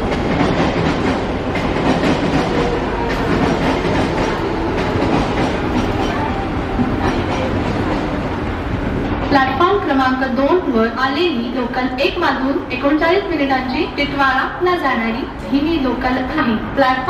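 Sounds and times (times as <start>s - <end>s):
diesel locomotives chugging: 0.0s - 10.2s.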